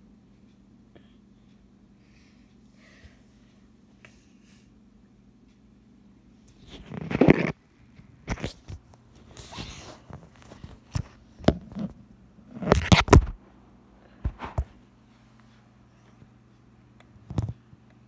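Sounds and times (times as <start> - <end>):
faint low hum: 0.0 - 18.0
phone handling rubbing: 6.7 - 7.6.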